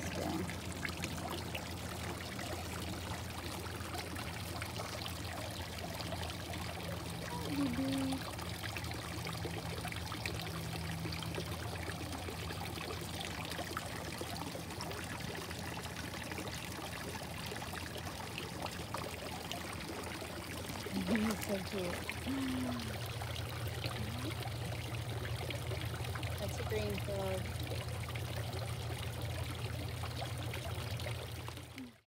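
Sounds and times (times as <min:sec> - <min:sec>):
low steady hum: 0:00.0 - 0:32.0
water trickling and splashing: 0:00.0 - 0:32.0.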